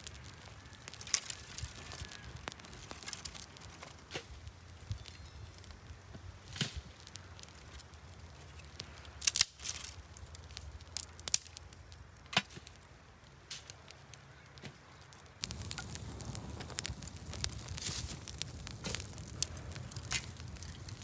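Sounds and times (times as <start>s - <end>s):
fire crackling: 0.0s - 21.0s
dry twigs snapping: 0.1s - 4.3s, 6.5s - 11.6s, 15.0s - 21.0s.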